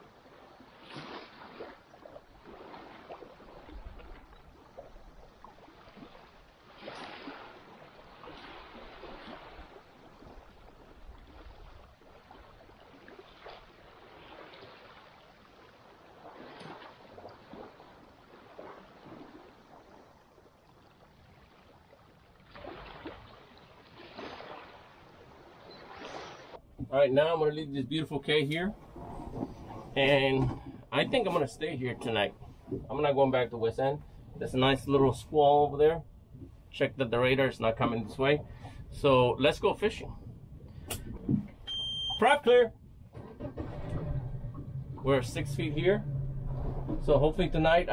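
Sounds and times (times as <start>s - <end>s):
small waves lapping: 0.0s - 47.9s.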